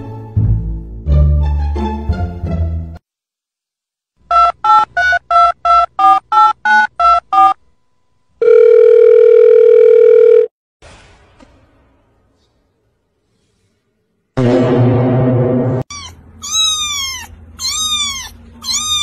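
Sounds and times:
telephone keypad beeps: 4.3 - 7.6
steady telephone tone: 8.4 - 10.5.

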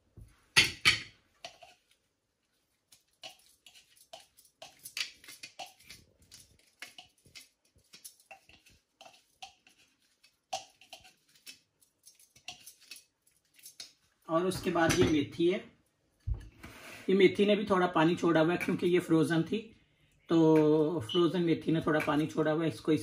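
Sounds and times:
spatula scraping plastic bowl: 3.0 - 13.0.

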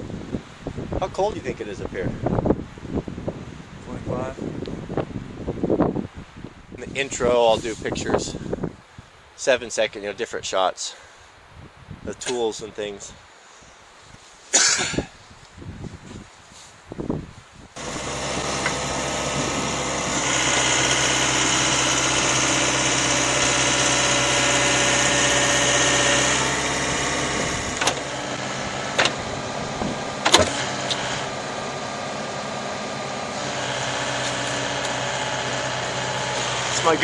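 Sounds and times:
excavator diesel engine running: 17.8 - 37.0.

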